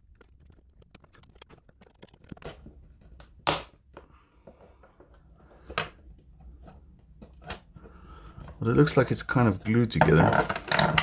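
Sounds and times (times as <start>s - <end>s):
plastic shell cracking: 0.0s - 4.0s.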